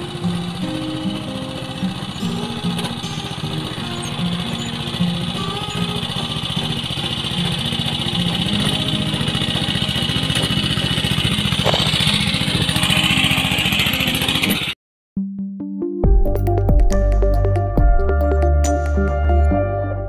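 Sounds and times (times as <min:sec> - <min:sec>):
small engine running under load: 0:00.0 - 0:14.8.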